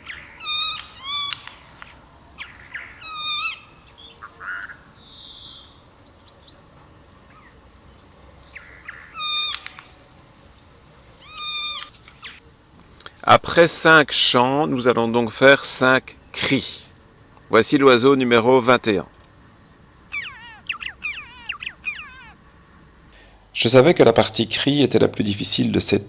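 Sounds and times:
faint bird notes: 14.5s - 23.6s
bird singing short pitched notes: 19.4s - 23.3s.

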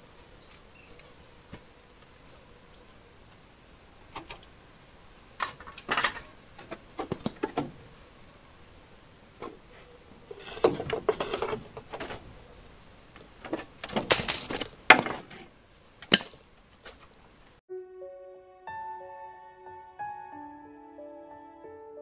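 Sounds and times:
soft music with sustained notes: 17.7s - 22.0s.

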